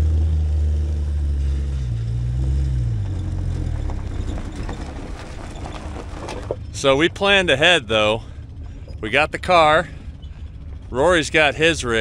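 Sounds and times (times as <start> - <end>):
car engine running: 0.0 - 12.0
tyres crackling over gravel: 2.9 - 11.4.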